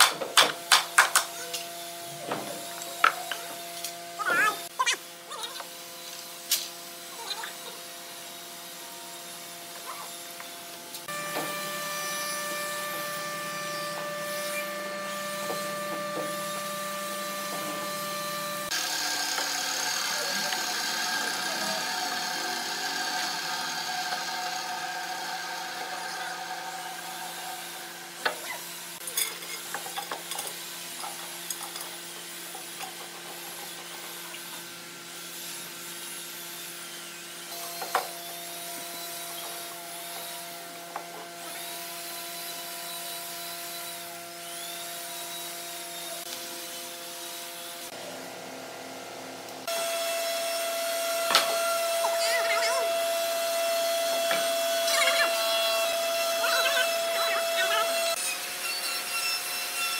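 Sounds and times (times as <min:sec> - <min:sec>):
hissing power tool: 0:00.9 - 0:29.0, 0:49.6 - 0:59.9
machine hum: 0:51.0 - 0:58.2.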